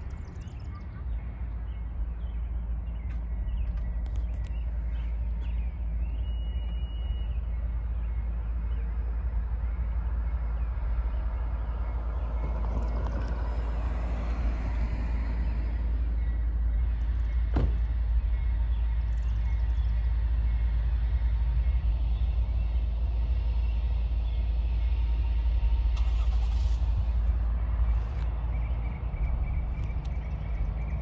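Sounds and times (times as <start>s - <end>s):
steady low rumble: 0.0s - 31.0s
car passing: 9.0s - 31.0s.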